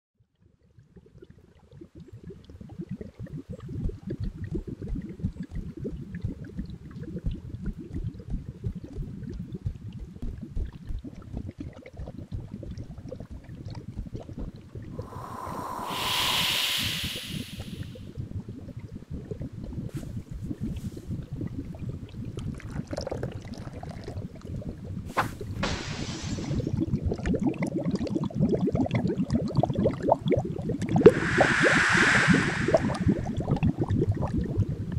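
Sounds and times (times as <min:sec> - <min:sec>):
thick liquid bubbling and popping: 0:00.2 - 0:15.0, 0:18.0 - 0:31.1, 0:33.2 - 0:34.9
hiss: 0:15.0 - 0:18.0, 0:25.2 - 0:26.8, 0:31.1 - 0:33.4.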